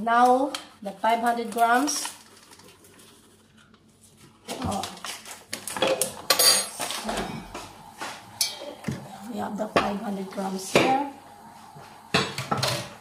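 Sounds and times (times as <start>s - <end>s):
metal pots and utensils clattering: 5.7s - 7.6s, 8.4s - 9.1s
bright metallic ring: 8.4s - 8.8s.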